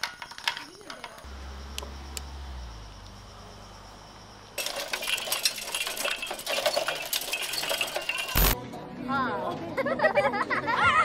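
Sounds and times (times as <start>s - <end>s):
metallic clinking and rattling: 4.6s - 8.6s.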